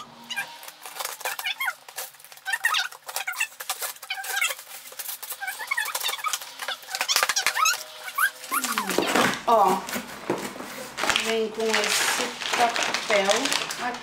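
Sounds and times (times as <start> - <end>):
high squeaky chirps: 0.0 - 9.0
packing tape tearing: 0.2 - 14.0.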